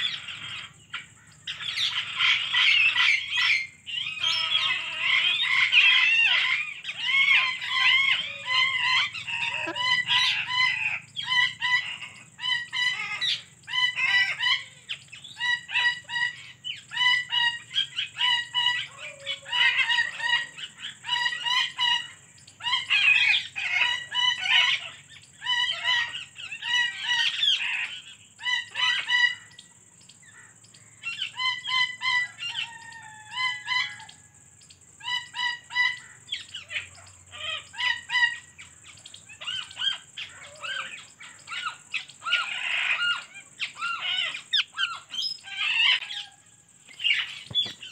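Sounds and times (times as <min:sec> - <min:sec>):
parakeet chirping: 0:01.5 - 0:17.4.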